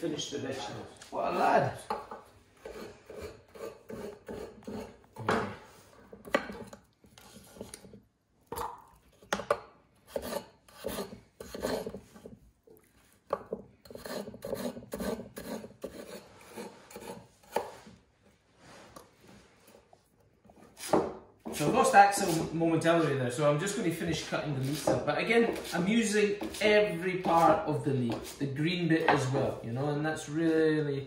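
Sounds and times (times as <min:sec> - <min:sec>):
knife chopping on wooden board: 0:13.3 - 0:17.8, 0:24.7 - 0:25.7.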